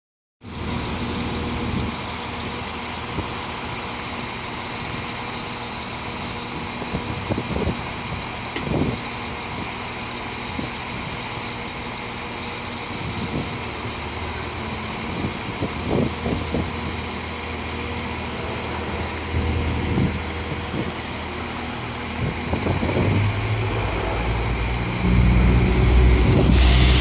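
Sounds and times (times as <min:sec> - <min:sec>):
train diesel engines droning: 0:00.4 - 0:27.0.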